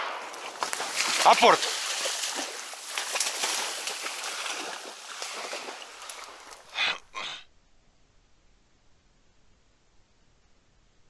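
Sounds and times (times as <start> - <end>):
short loud splashes: 0.0 - 6.6
splashing in water and reeds: 0.2 - 6.8.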